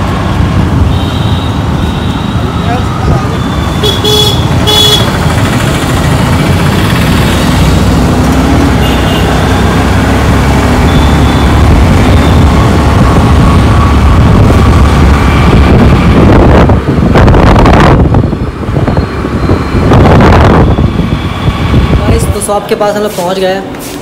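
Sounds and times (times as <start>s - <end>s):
motorcycle engine: 0.0s - 22.1s
street traffic: 0.0s - 24.0s
vehicle horn toot: 0.9s - 2.4s, 3.4s - 5.1s, 8.8s - 9.4s
wind rumbling on microphone: 9.4s - 23.0s.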